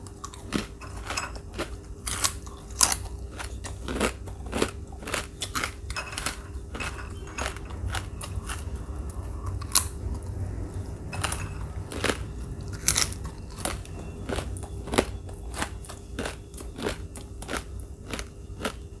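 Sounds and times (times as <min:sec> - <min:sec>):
crunchy snack chewing: 0:00.0 - 0:19.0.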